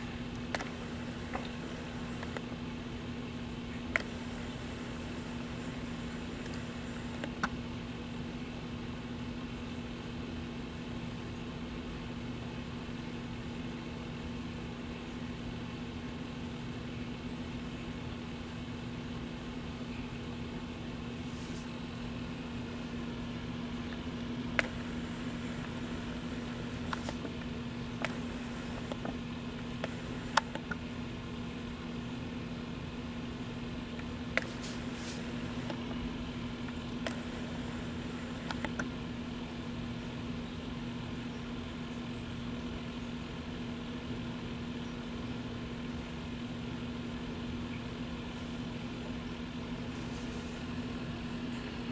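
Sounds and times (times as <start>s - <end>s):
motor humming: 0.0s - 7.6s, 21.4s - 31.4s, 33.5s - 39.6s
background hiss: 0.0s - 8.8s, 15.1s - 40.3s, 47.0s - 51.9s
steady low hum: 0.0s - 51.9s.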